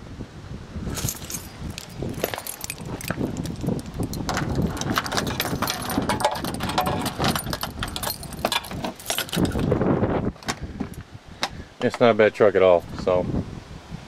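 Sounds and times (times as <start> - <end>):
wind buffeting microphone: 0.0 - 14.0
footsteps crunching on gravel: 0.9 - 5.6
crackling clicks: 1.7 - 9.6.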